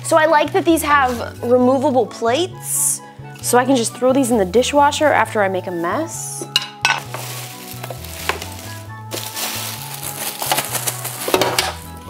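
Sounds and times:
background music with bass: 0.0s - 12.0s
plastic bag crinkling: 7.0s - 11.9s.

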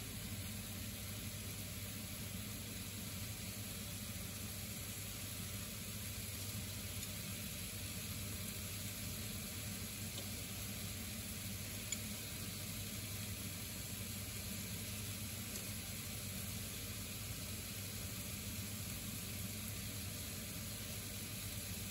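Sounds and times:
food sizzling in oil: 0.1s - 21.9s.

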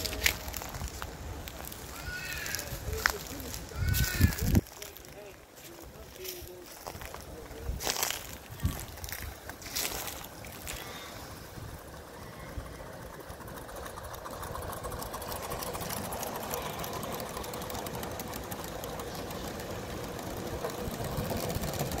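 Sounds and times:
model train clattering on track: 13.0s - 22.0s.

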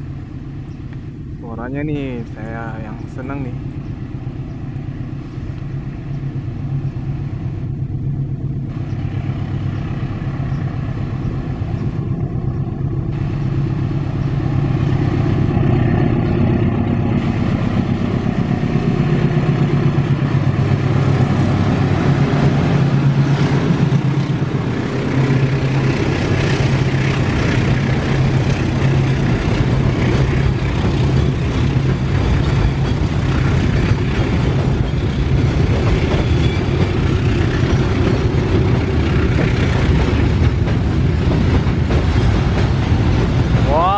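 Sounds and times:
diesel locomotive engine drone: 0.0s - 43.9s
freight wagons rumbling and clattering: 10.6s - 43.9s.

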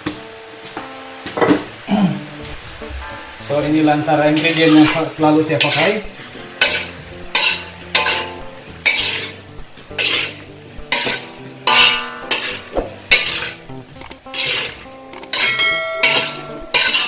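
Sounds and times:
metal spatula scraping a wok: 4.1s - 17.0s.

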